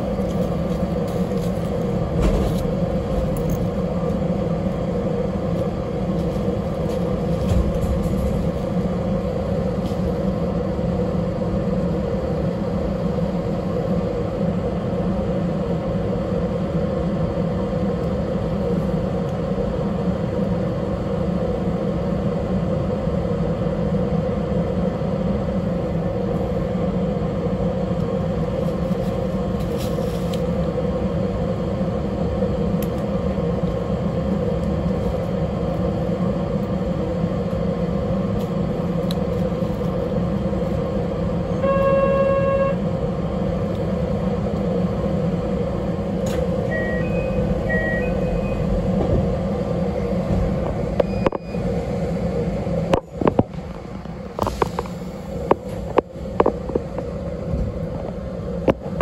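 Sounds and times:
railcar interior hum and rumble: 0.0 - 59.0
horn tone: 41.5 - 42.8.

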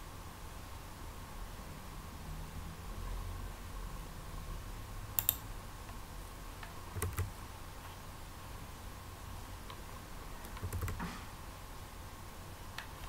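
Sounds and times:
faint steady hum: 0.0 - 13.0
keyboard keystrokes and clicks: 5.2 - 5.4, 6.9 - 7.4, 10.4 - 11.1.

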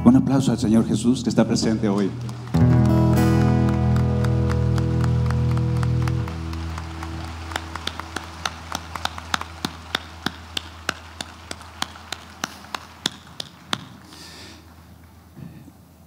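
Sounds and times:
low steady hum: 1.4 - 13.7
hands clapping: 1.9 - 15.2.

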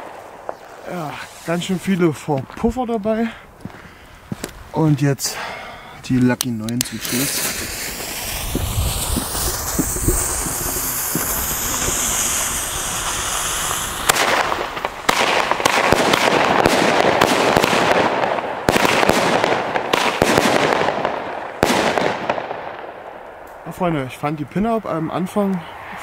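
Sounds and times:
firework shots launching: 0.0 - 1.6, 6.8 - 23.7
firework fuse hissing: 0.0 - 2.0, 6.8 - 17.0
firework crackling: 0.0 - 2.6, 6.5 - 24.4.

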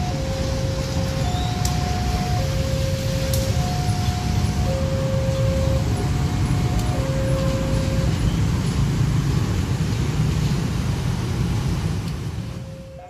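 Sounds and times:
two-tone crossing warning signal: 0.0 - 9.0, 12.5 - 13.0
traffic engine drone: 0.0 - 13.0.

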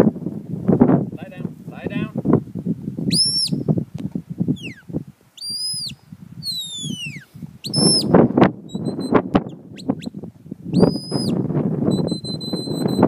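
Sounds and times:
shepherd's whistle: 3.1 - 3.6, 4.6 - 13.0.

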